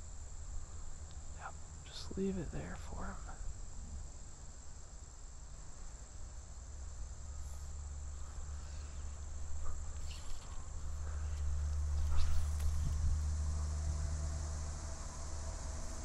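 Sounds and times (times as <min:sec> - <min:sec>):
faint ticks: 0:01.0 - 0:01.3
high-pitched insect drone: 0:05.7 - 0:16.0.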